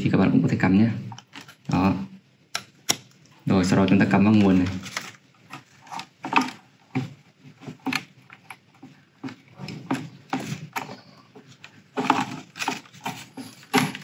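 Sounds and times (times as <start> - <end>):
plastic charger clicks and rustles: 1.1 - 1.8, 2.5 - 14.0.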